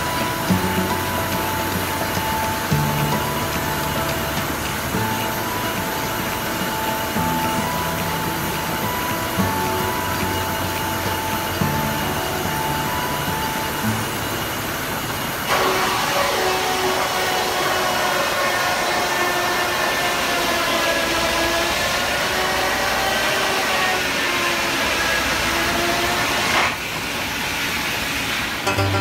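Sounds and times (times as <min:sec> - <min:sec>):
steam engine hissing: 0:00.0 - 0:19.9
wavering machine whine: 0:00.0 - 0:26.8.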